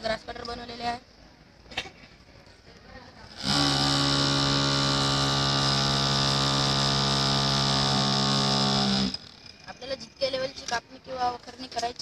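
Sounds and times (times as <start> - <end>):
small electric motor whining: 3.3 - 9.7.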